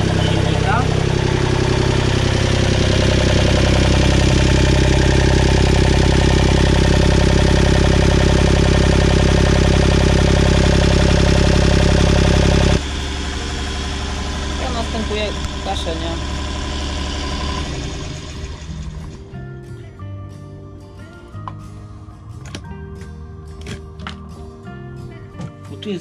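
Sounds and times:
diesel engine running: 0.0s - 20.1s.

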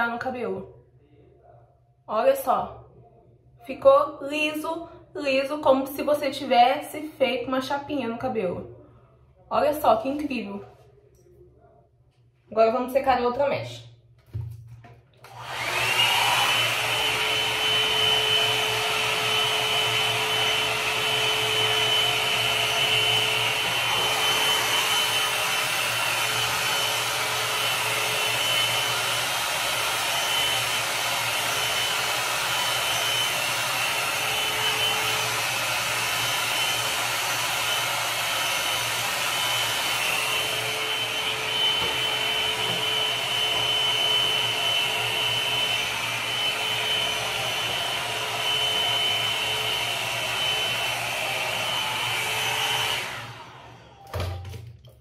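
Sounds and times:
hot-air brush motor whine: 15.3s - 54.3s.

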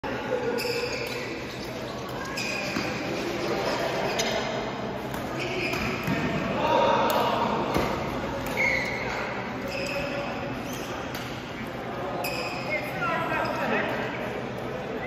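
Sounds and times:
sneakers squeaking on court floor: 0.4s - 6.4s, 7.7s - 11.4s, 12.2s - 13.8s.

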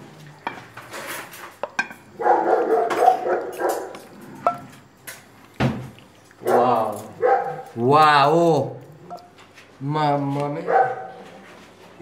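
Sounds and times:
plates and cutlery clinking: 0.3s - 2.1s, 2.8s - 5.9s
dog yelping: 2.2s - 3.9s, 6.5s - 7.7s, 10.7s - 11.2s.

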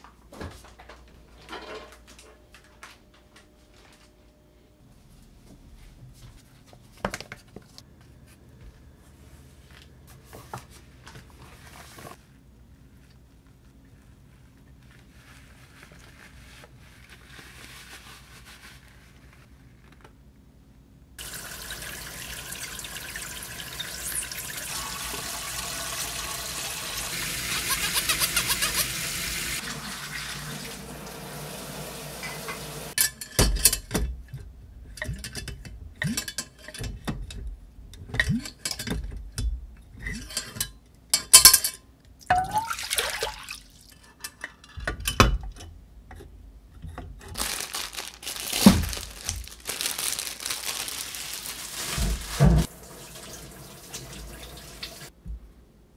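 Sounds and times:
running tap water: 21.2s - 33.0s, 42.4s - 43.9s, 51.8s - 55.1s
sponge scrubbing: 27.2s - 29.6s.

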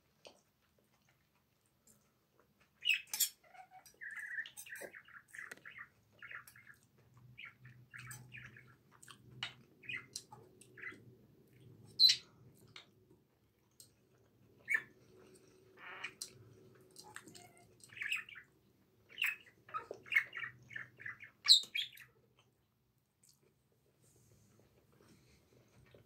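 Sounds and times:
chewing and mouth sounds: 0.1s - 2.8s, 8.9s - 10.8s, 22.3s - 23.7s.

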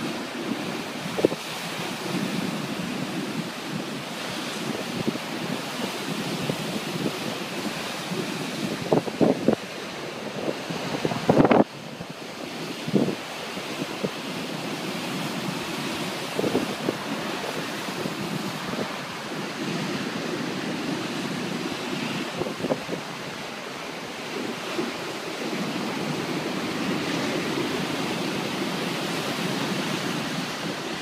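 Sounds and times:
wind buffeting microphone: 0.0s - 31.0s
rough surf crashing on wall: 10.3s - 11.7s.

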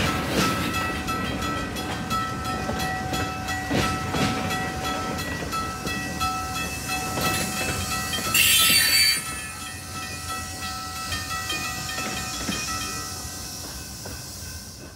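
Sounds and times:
loud hiss: 6.8s - 10.6s
high wheel squeal: 8.2s - 10.4s.

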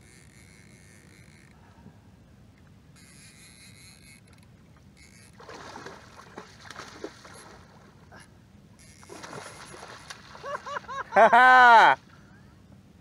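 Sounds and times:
small water splashes: 5.3s - 8.1s, 9.1s - 10.9s
water lapping against kayak hull: 5.3s - 8.1s.

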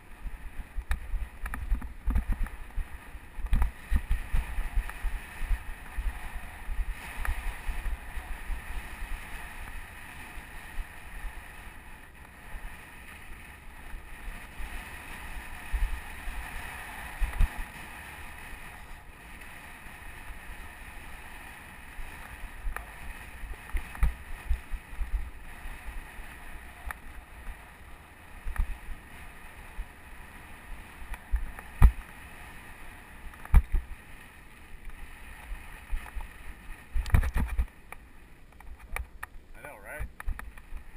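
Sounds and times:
bike tyres rushing on dirt: 0.0s - 40.9s
wind buffeting microphone: 0.0s - 40.9s
bike knocking and rattling: 0.6s - 10.6s, 21.7s - 25.4s, 31.0s - 32.3s, 33.3s - 35.0s, 35.9s - 39.4s.

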